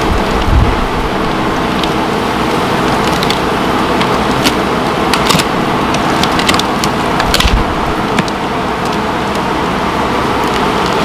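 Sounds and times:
steady loud hiss: 0.0 - 11.0
wood cracking and creaking: 2.9 - 9.4.

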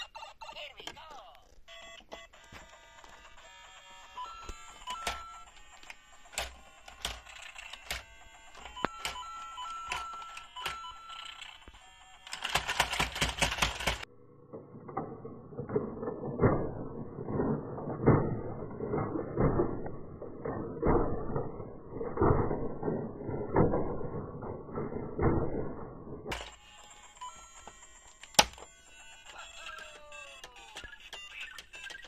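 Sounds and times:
electronic toy beeps and tones: 0.0 - 14.0, 26.4 - 32.0
plastic clicks: 27.6 - 32.0.

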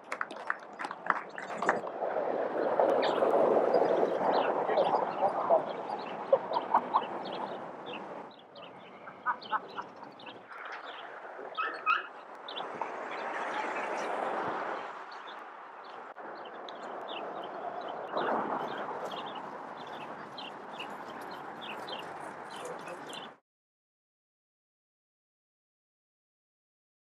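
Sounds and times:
open-air background noise: 0.0 - 23.4
birds chirping: 2.6 - 23.4.

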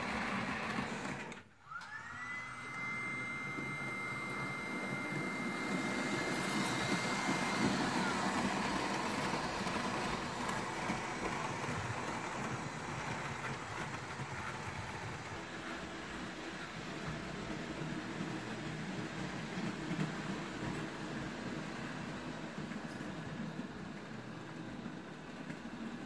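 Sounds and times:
model train motor whine: 0.0 - 15.4.

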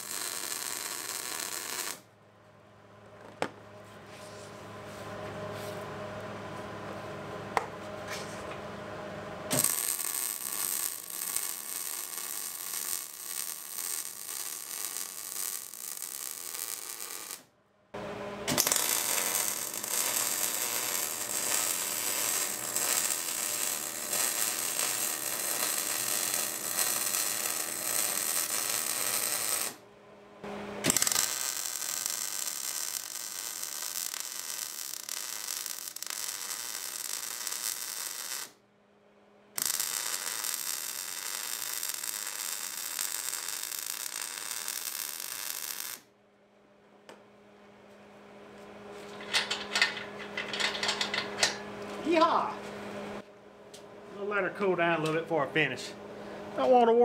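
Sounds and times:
welding arc crackling and hissing: 0.0 - 2.0, 9.5 - 17.5, 18.5 - 29.8, 30.8 - 38.6, 39.6 - 46.1.

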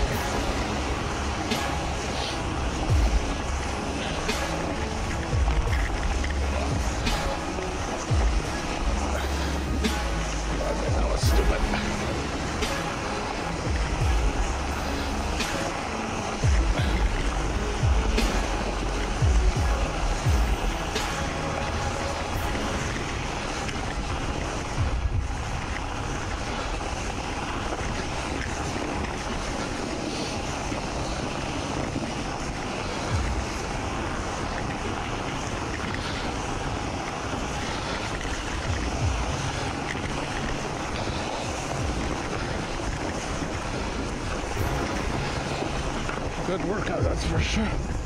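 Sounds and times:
bicycle tyres rolling over snow: 0.0 - 48.0
wind on microphone: 0.0 - 48.0.

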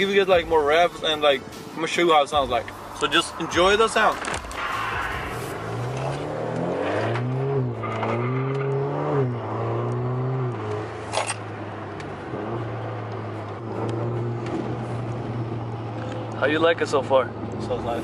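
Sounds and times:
car engine accelerating: 2.4 - 18.0
short sharp burst of noise: 4.2 - 6.2.

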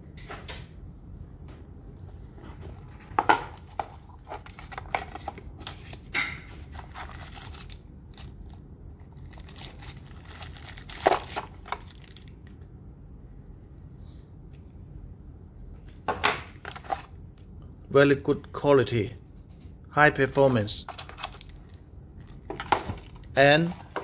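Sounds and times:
plastic crinkling: 3.7 - 12.5, 20.8 - 24.0.

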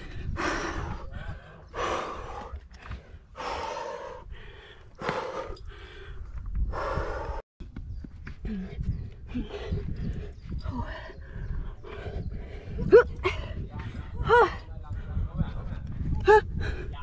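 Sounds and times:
person breathing hard and gasping: 0.0 - 7.4.

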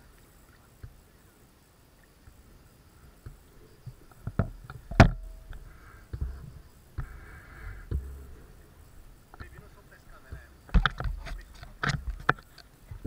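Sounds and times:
sharp knocks and bumps: 7.8 - 8.4, 9.3 - 13.0.

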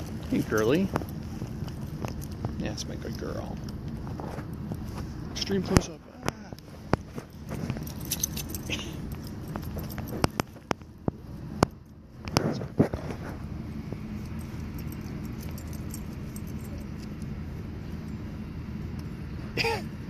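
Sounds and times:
distant traffic rumble: 0.0 - 20.0
dog collar tags jingling: 7.6 - 10.6, 14.1 - 18.3.

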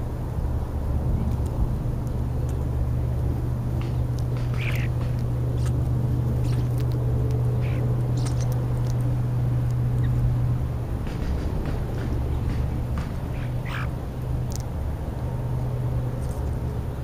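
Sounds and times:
steady low hum: 0.0 - 17.0
starling calls: 3.8 - 9.1, 9.7 - 10.3, 11.1 - 14.6.

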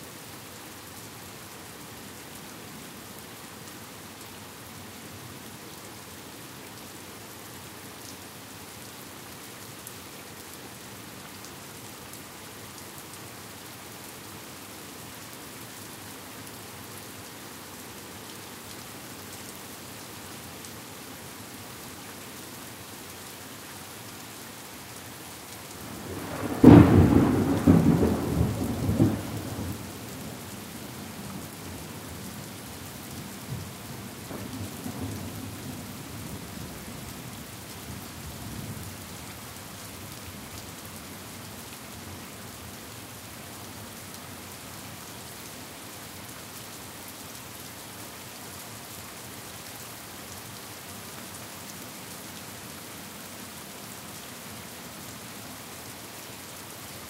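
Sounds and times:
steady rain: 0.0 - 57.0
thunder rumbling: 26.0 - 29.4.

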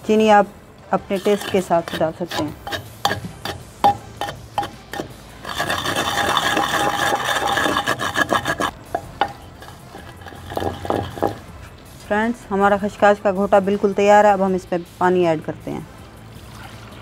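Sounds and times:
pestle rasping in clay mortar: 1.0 - 11.8
pestle tapping in mortar: 1.2 - 11.5.

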